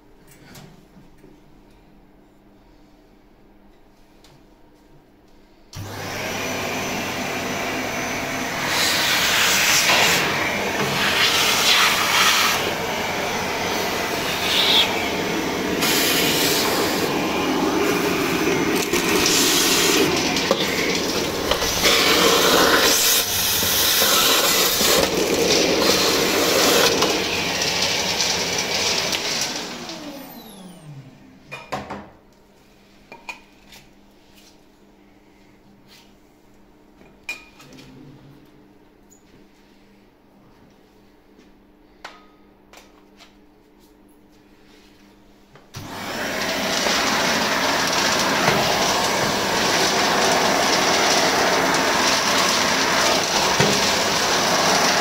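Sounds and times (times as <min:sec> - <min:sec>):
vacuum cleaner sucking ash: 0:05.8 - 0:31.4, 0:45.8 - 0:55.0
vacuum motor winding down: 0:05.8 - 0:31.5, 0:45.8 - 0:55.0.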